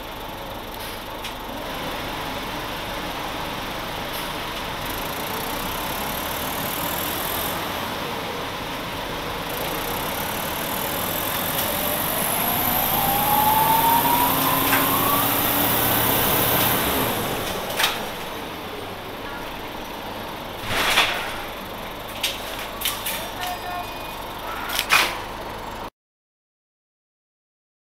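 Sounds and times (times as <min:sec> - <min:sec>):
bus engine accelerating: 0:00.0 - 0:25.9
rising whine: 0:05.1 - 0:20.6.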